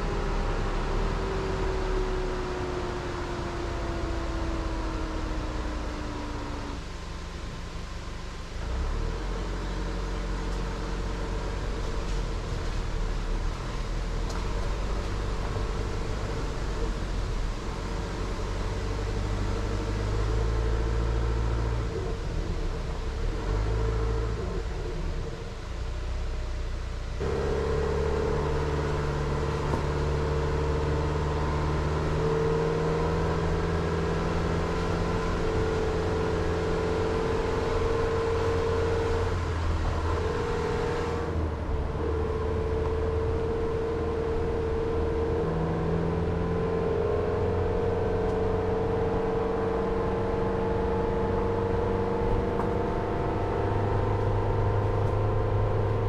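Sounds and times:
car engine hum: 0:00.0 - 0:56.0
tyre noise on wet road: 0:08.6 - 0:45.6.

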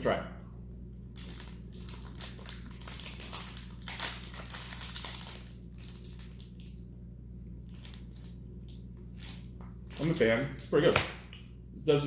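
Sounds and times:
wrapper crinkling: 0:01.1 - 0:06.9, 0:07.6 - 0:11.0.

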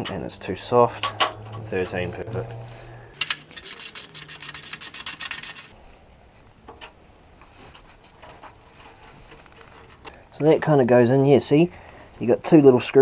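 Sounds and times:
ratchet wrench clicking: 0:03.2 - 0:05.7.

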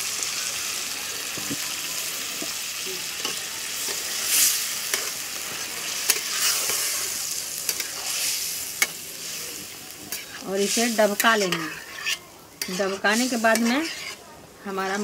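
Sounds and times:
gravy sizzling in a pan: 0:00.0 - 0:15.0
ladle scraping a pan: 0:03.3 - 0:14.3.

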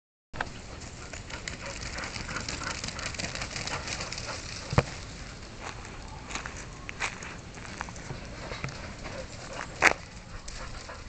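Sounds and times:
footsteps crunching on gravel: 0:04.2 - 0:10.9.

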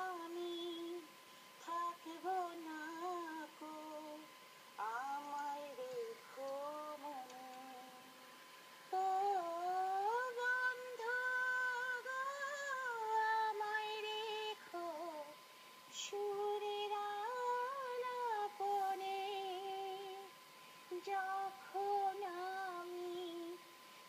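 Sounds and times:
faint steady tone: 0:00.0 - 0:24.0
woman singing solo: 0:08.9 - 0:23.6.

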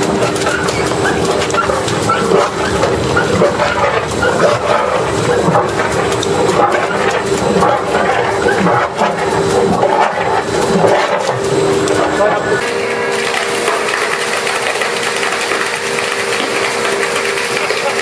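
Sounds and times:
ice slurry spraying from pipe: 0:00.0 - 0:18.0
industrial machinery running: 0:00.0 - 0:18.0
machine hum: 0:00.0 - 0:18.0
indistinct voices: 0:00.6 - 0:12.6.

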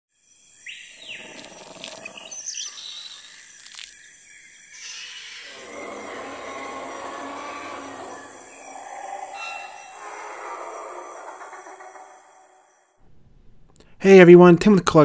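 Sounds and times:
high insect buzz: 0:00.1 - 0:12.9
jungle ambience: 0:00.1 - 0:14.0
bird chirps: 0:00.2 - 0:13.0.

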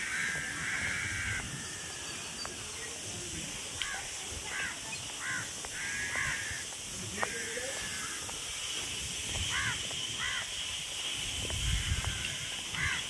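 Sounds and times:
crow cawing: 0:00.0 - 0:01.8, 0:03.8 - 0:08.3, 0:09.5 - 0:10.5, 0:11.7 - 0:13.0
steady outdoor hiss: 0:00.0 - 0:13.0.

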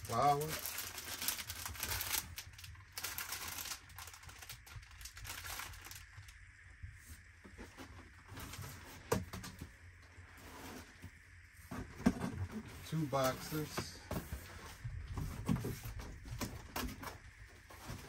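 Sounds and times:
packaging rustling: 0:00.0 - 0:06.4
plastic wrapping crinkling: 0:00.0 - 0:06.4.

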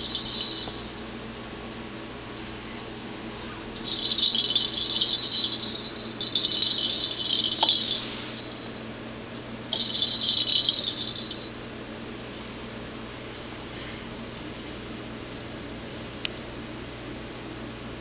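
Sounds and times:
jingle ball rattling: 0:00.0 - 0:01.0, 0:03.8 - 0:08.8, 0:09.7 - 0:11.6.

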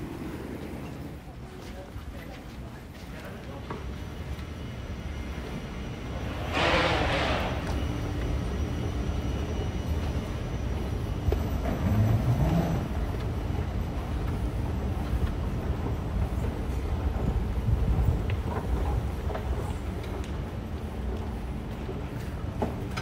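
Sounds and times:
terminal hall noise: 0:00.0 - 0:23.0
escalator rumbling: 0:03.4 - 0:23.0
rush of hiss: 0:06.3 - 0:08.0.

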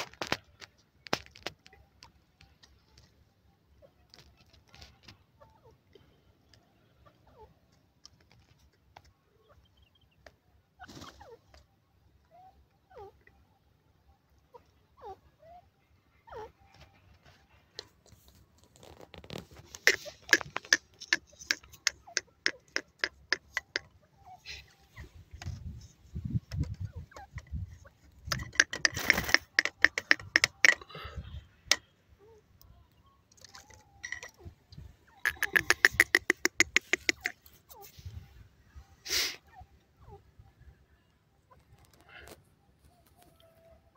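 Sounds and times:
bird sharp clicking calls: 0:19.7 - 0:25.9, 0:26.5 - 0:30.9, 0:33.3 - 0:37.9
bird calls sliding down: 0:35.1 - 0:37.9.

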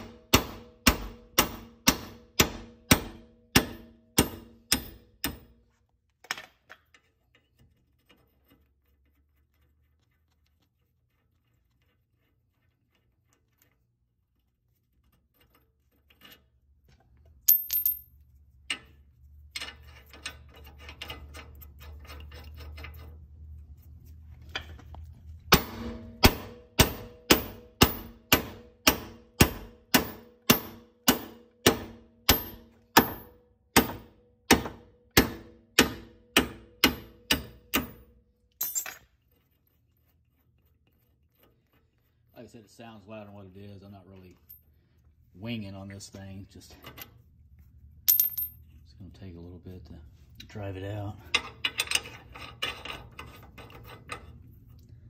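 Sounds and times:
hammer striking metal hub: 0:00.0 - 0:05.6, 0:25.5 - 0:39.0.

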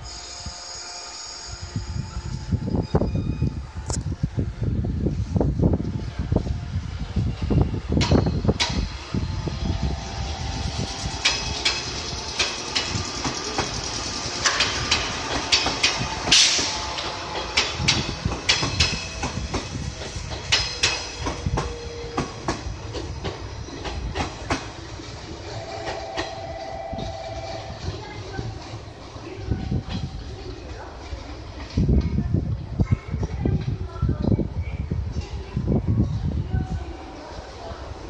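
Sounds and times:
electric train running past: 0:00.0 - 0:38.0
wheels clicking over rail joints: 0:11.2 - 0:25.2.

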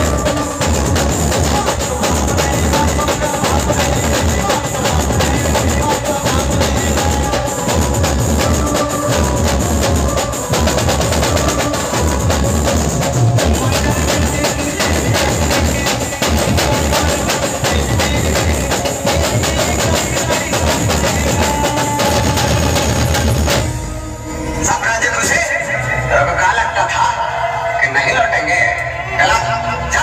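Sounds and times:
fast dense drumming: 0:00.0 - 0:24.0
heavy bass: 0:00.0 - 0:27.7
loud live band music: 0:00.0 - 0:27.8.

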